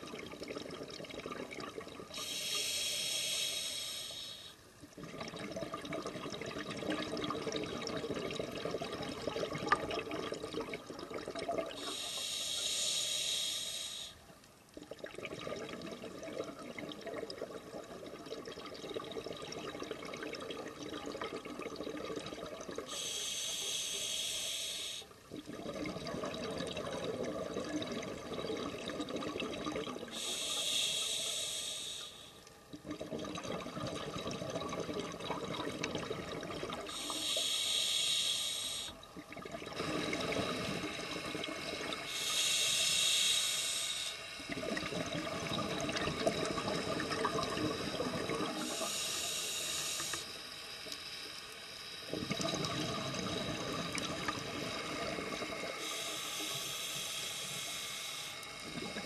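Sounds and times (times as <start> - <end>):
hissing regulator inhale: 2.2 - 4.6, 11.8 - 14.2, 22.9 - 25.1, 30.1 - 32.4, 36.9 - 39.0, 39.8 - 44.6, 47.7 - 52.3, 54.6 - 59.0
bubbling exhale: 21.1 - 32.4, 33.0 - 50.3, 52.1 - 59.0.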